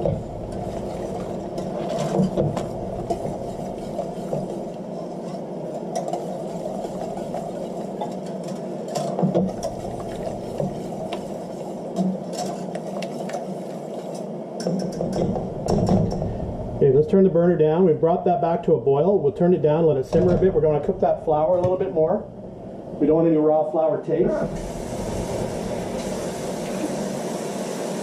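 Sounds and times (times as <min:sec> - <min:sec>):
wire whisk beating sauce in pan: 0:00.0 - 0:14.2
steady hum: 0:00.0 - 0:28.0.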